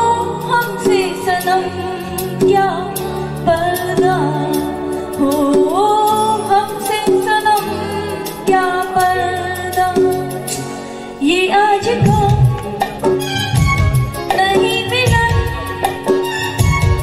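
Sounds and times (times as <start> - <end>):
keyboard: 0.0 - 17.0
woman singing into a microphone: 0.0 - 17.0
hand drums: 12.0 - 17.0.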